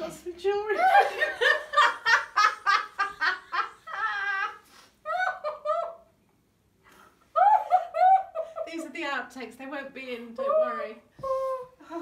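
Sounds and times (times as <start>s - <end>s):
women giggling: 0.8s - 6.0s, 7.4s - 8.8s.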